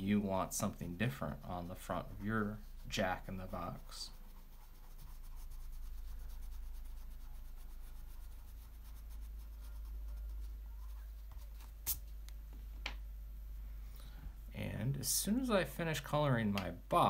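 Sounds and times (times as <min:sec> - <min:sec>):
crayon rubbing on paper: 0:00.0 - 0:12.0.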